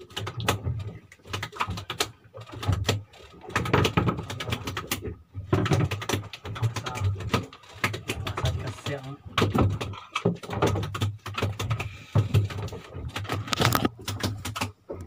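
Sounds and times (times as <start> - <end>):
knocks and clatter of gear: 0.0 - 15.0.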